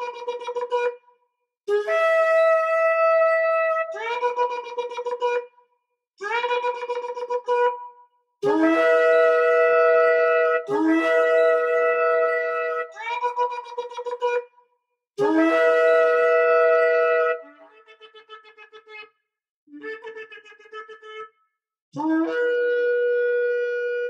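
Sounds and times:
shofar blasts: 0:08.4 - 0:12.8, 0:15.2 - 0:17.4.

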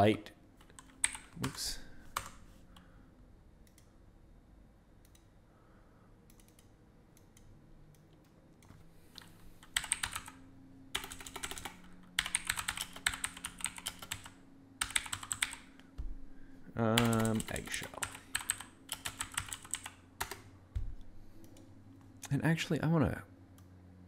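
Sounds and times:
typing on keyboard: 0:00.6 - 0:02.4, 0:09.6 - 0:15.7, 0:16.9 - 0:20.9.

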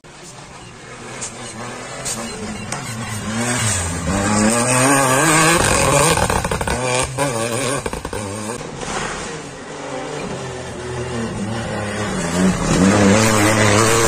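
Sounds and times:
rally car engines revving: 0:00.0 - 0:14.0.

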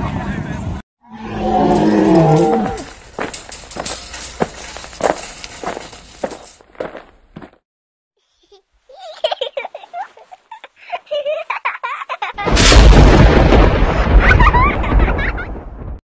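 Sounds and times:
explosion boom with rumble: 0:12.4 - 0:16.0.

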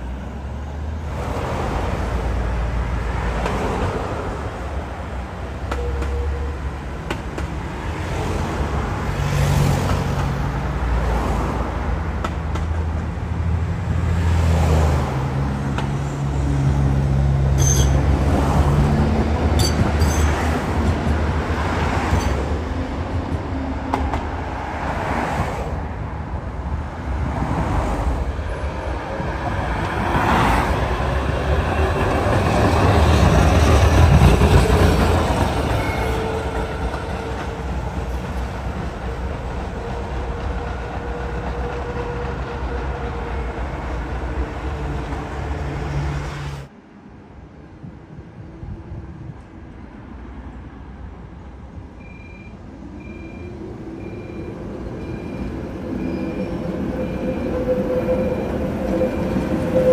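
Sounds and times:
tram rumbling on track: 0:00.0 - 0:59.9
tram wheels squeaking: 0:05.6 - 0:07.5, 0:17.5 - 0:18.5, 0:19.4 - 0:24.2, 0:28.4 - 0:45.6, 0:52.0 - 0:59.9.

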